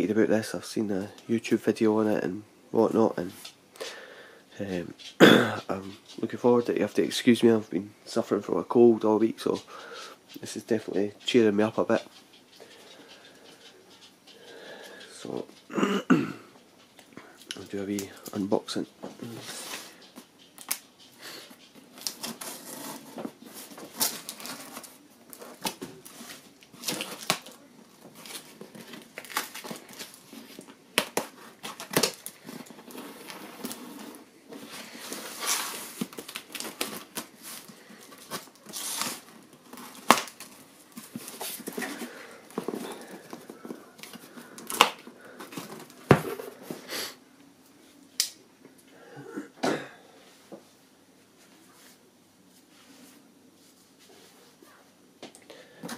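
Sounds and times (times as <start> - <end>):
tape tearing and crinkling: 22.0 - 43.4.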